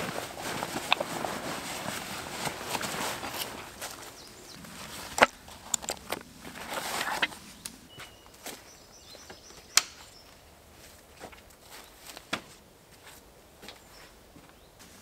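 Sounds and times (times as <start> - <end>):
footsteps on woodland floor: 0.0 - 15.0
bird chirping: 4.0 - 5.2, 7.3 - 10.5.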